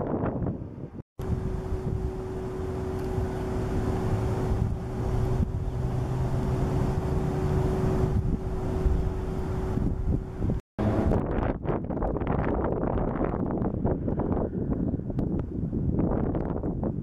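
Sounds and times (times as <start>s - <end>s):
wind buffeting microphone: 0.0s - 17.0s
steady humming tone: 1.2s - 11.3s
low rumble: 1.2s - 14.6s.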